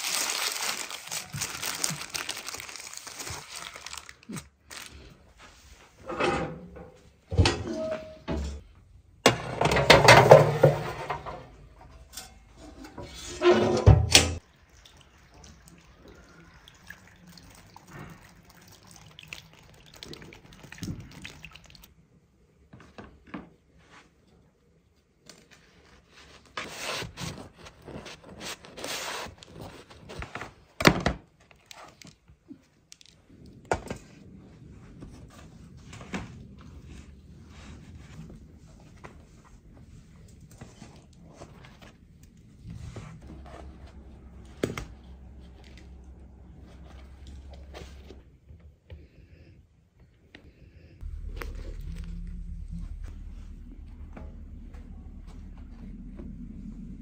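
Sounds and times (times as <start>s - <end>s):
utensils and dishes clattering: 9.3s - 14.4s.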